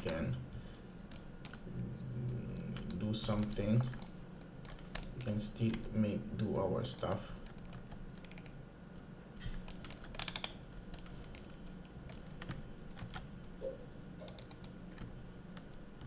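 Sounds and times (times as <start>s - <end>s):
low steady hum: 0.0s - 16.0s
keyboard and mouse clicks: 1.1s - 1.6s, 2.6s - 5.9s, 7.0s - 8.6s, 9.4s - 15.8s.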